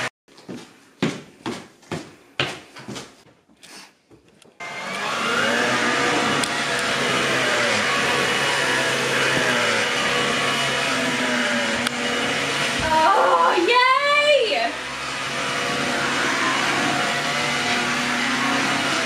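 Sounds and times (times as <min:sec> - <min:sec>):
stick vacuum motor running: 0:04.6 - 0:19.0.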